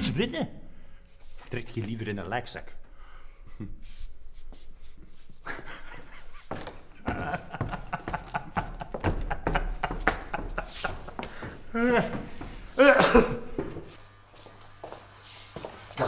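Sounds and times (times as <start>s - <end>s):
men laughing and chattering: 5.3s - 13.6s.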